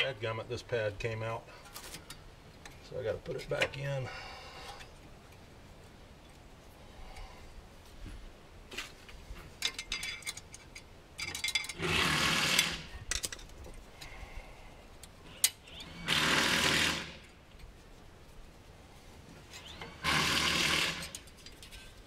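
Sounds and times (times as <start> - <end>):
light metal clicks and taps: 9.4 - 11.8.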